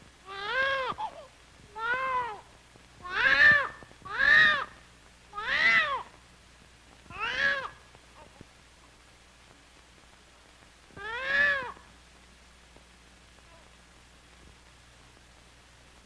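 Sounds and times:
newborn baby crying: 0.3 - 2.4, 3.0 - 4.7, 5.3 - 6.1, 7.1 - 8.3, 11.0 - 11.8.

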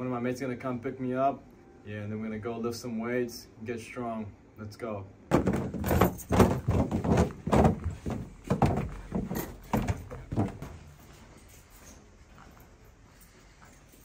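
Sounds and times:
footsteps running down stairs: 5.3 - 10.9.

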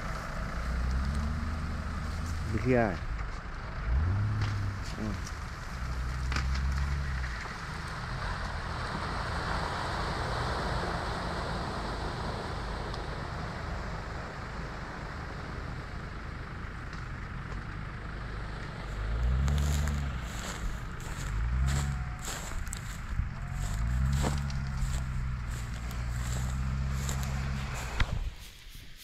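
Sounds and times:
car engine driving off: 0.0 - 28.5
rustles: 18.9 - 29.0.

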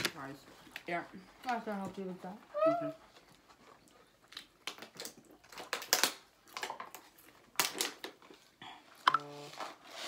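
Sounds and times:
packaging crinkling: 2.5 - 8.5.

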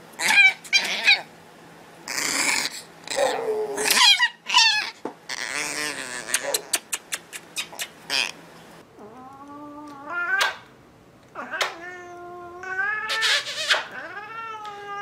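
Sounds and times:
cat yowling: 0.2 - 1.3, 2.2 - 6.6, 9.0 - 10.6, 11.4 - 15.0
sharp smacking clicks: 6.3 - 8.0, 10.4 - 10.7, 11.6 - 11.8.

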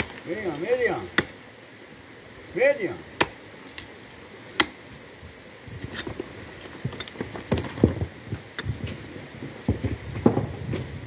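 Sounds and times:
pick striking rocky ground: 5.8 - 9.0
stones and earth clattering: 5.8 - 11.0.

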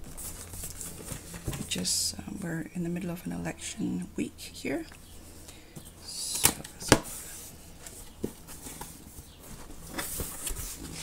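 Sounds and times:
paper rustling: 6.4 - 11.0.

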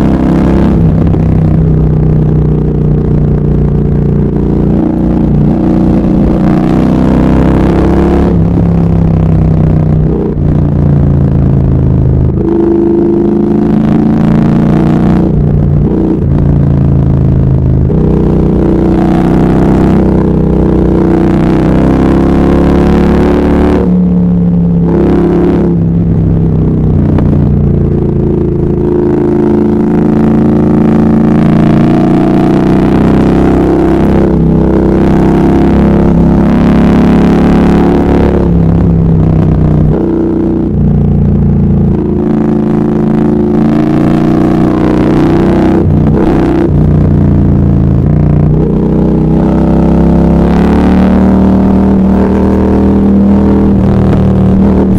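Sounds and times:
motorcycle engine revving: 0.0 - 54.9.

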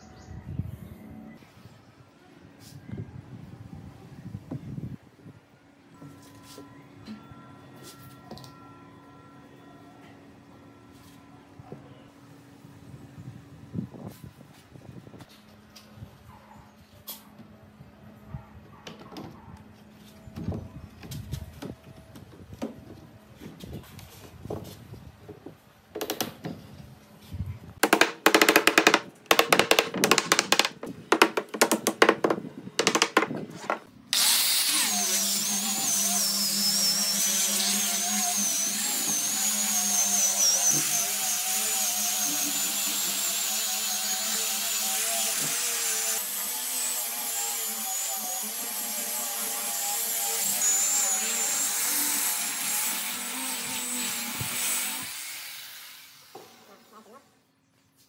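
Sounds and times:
loud irregular knocks: 27.8 - 33.9
angle grinder sanding wood: 33.8 - 56.7.

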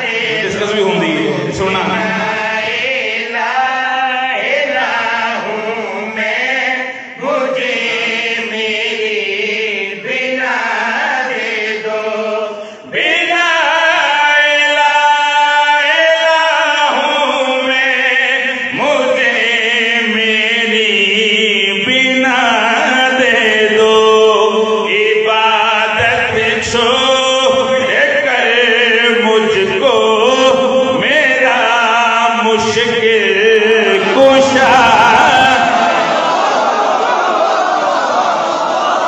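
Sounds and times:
man chanting into a microphone: 0.0 - 36.0.

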